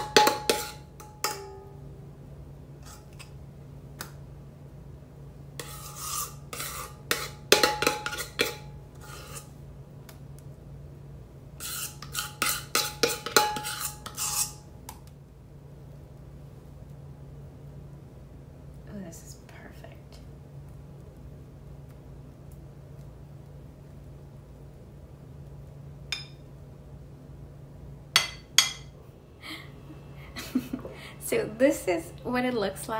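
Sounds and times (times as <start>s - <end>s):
spoon scraping a bowl: 0.0s - 1.4s, 2.8s - 3.4s, 5.6s - 9.6s, 11.6s - 14.6s.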